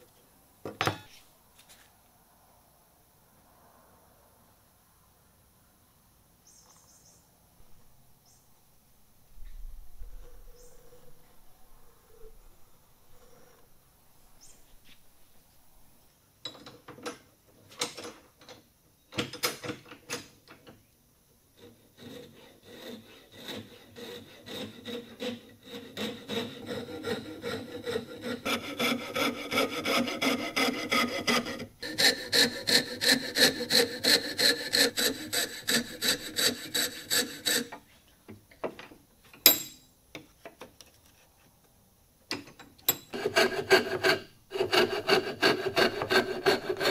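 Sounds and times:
coping saw cutting wood: 21.6 - 37.8, 43.1 - 46.9.

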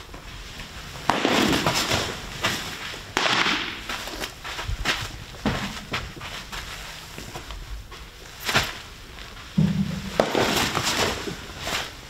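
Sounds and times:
baseball smacking into glove: 9.6 - 11.2.

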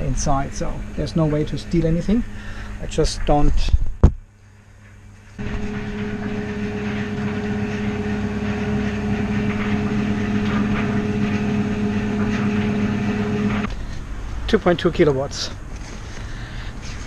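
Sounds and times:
machine hum with hiss: 5.4 - 13.8.

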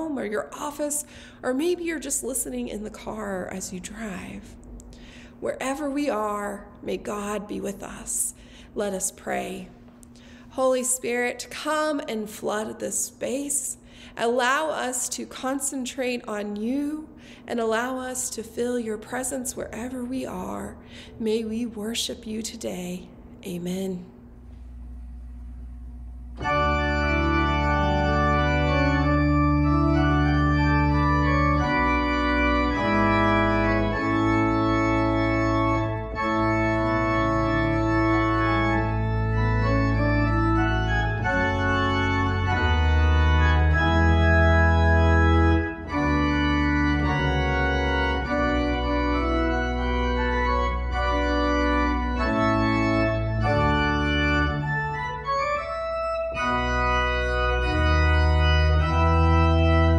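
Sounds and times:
organ chords on keyboard: 24.4 - 59.9.

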